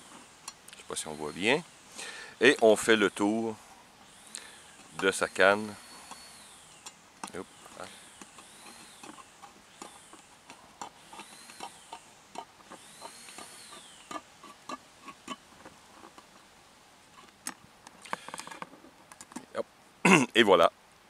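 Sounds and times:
squeaky metal scrapes: 0:04.9 - 0:06.8, 0:07.4 - 0:15.4.

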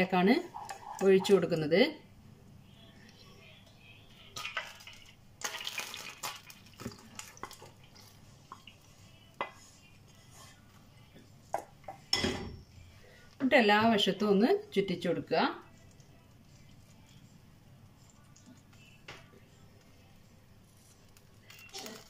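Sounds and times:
spatula scraping saucepan: 0:00.4 - 0:01.5.

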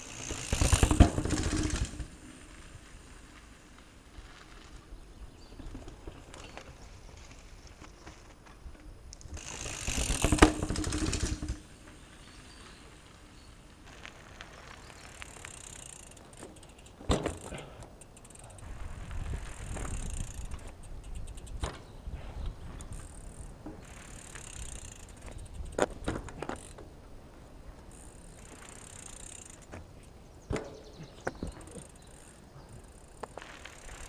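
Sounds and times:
loud rustling clatter: 0:00.0 - 0:02.2, 0:09.3 - 0:12.0
bike knocking: 0:00.0 - 0:02.3, 0:09.3 - 0:12.0, 0:15.2 - 0:18.6, 0:27.9 - 0:34.0
bike tyres crunching on gravel: 0:00.0 - 0:21.6, 0:22.6 - 0:34.0.

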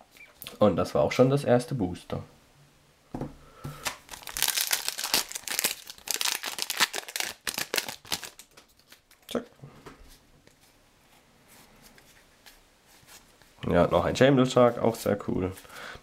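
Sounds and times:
foil wrapper tearing and crinkling: 0:03.8 - 0:09.1.

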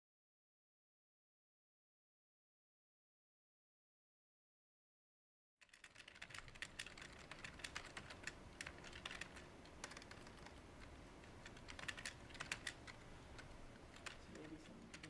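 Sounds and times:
keyboard typing: 0:05.6 - 0:15.0.

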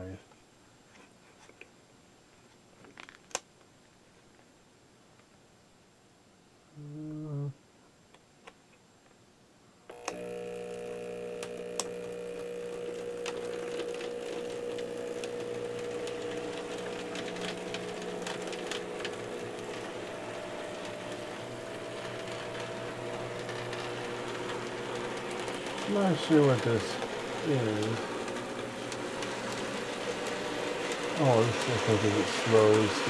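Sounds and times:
model train wheels clicking: 0:09.9 - 0:33.0
small electric motor humming: 0:09.9 - 0:33.0.

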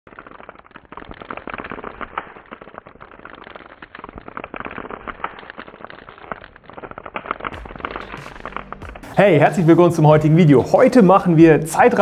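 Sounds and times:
dense crackling and popping: 0:00.0 - 0:12.0
sharp clicks: 0:00.2 - 0:09.2.

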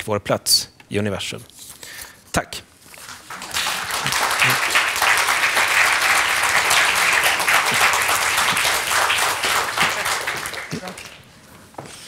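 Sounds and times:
audience applauding: 0:03.0 - 0:11.3.

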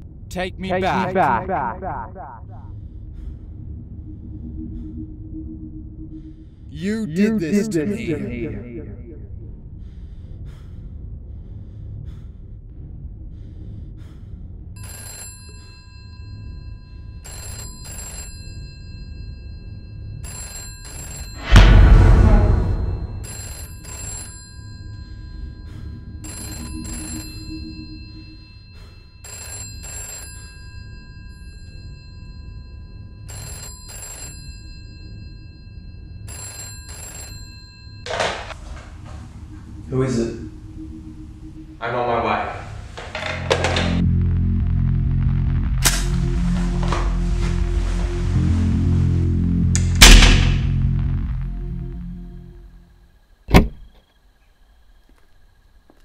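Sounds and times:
low droning film score: 0:00.0 - 0:17.5, 0:21.3 - 0:29.2, 0:38.1 - 0:56.0
loud boom: 0:06.8 - 0:09.4, 0:21.4 - 0:23.3, 0:49.9 - 0:51.2
telephone double ring: 0:17.2 - 0:18.6, 0:23.2 - 0:24.7, 0:33.2 - 0:34.9, 0:36.3 - 0:38.6.

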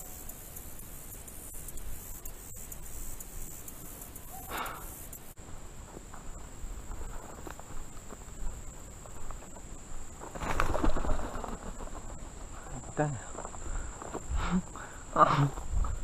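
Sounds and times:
high-pitched insect drone: 0:00.0 - 0:05.4
low wind rumble: 0:05.4 - 0:16.0.

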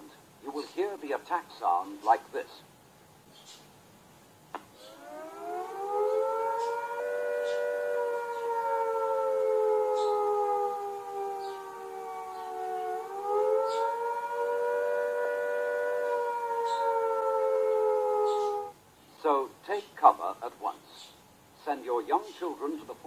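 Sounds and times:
civil defence siren rising and falling: 0:04.8 - 0:18.8.

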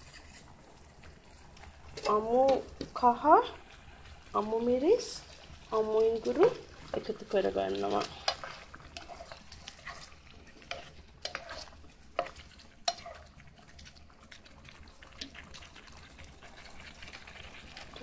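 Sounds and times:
plastic spoon scraping a skillet: 0:00.0 - 0:00.5, 0:07.8 - 0:13.8.

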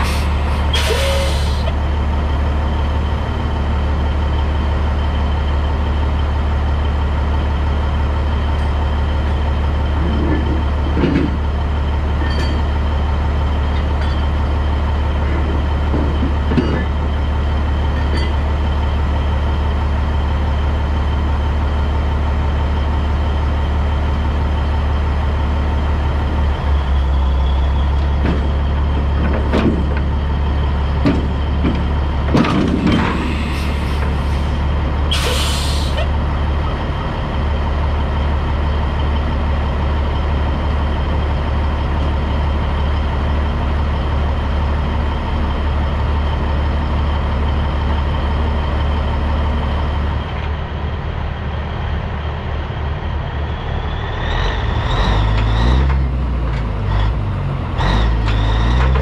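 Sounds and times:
truck diesel engine humming: 0:00.0 - 0:59.0
metal clanks: 0:12.2 - 0:12.8.

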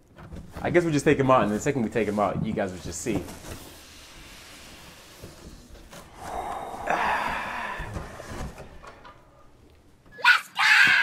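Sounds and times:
cardboard boxes scraping and rustling: 0:00.4 - 0:06.4.

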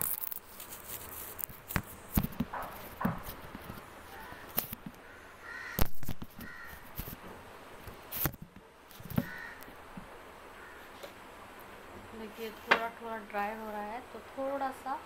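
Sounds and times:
crows cawing: 0:04.1 - 0:06.9, 0:09.2 - 0:09.7, 0:10.6 - 0:11.0.

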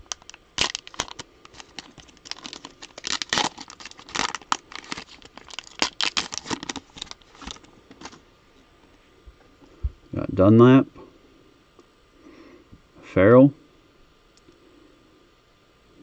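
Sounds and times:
plastic wrapper crinkling: 0:00.0 - 0:08.2.

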